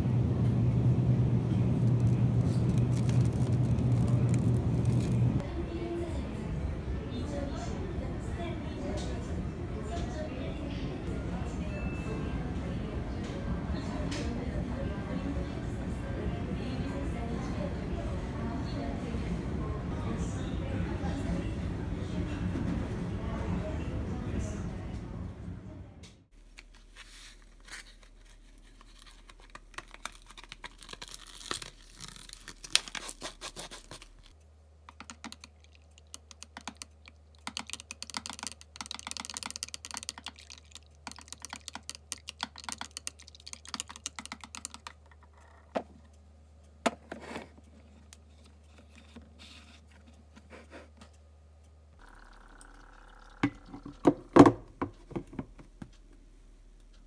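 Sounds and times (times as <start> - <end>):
spoon stirring in plastic tub: 34.9 - 45.3.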